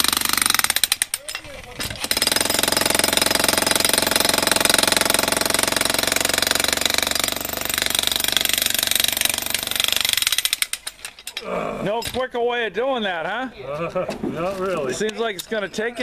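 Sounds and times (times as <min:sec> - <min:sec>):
demolition hammer hammering concrete: 0:00.0 - 0:10.8.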